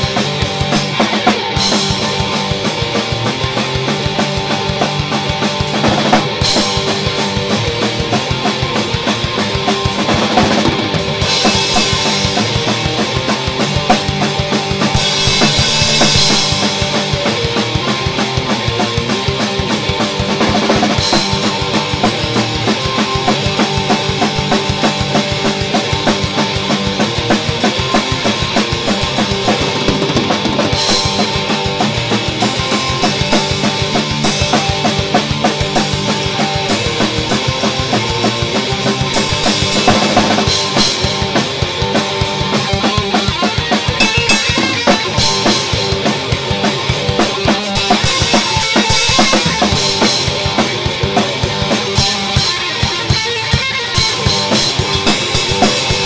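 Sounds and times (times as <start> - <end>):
drum kit fast beat: 0.0 - 56.0
electric guitar through an amp: 0.0 - 56.0
crash cymbals: 13.7 - 18.0.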